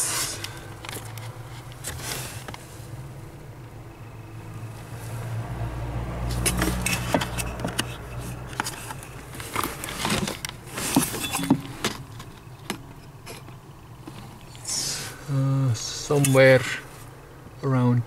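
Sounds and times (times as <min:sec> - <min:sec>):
low rumble of handling: 0:00.0 - 0:14.7.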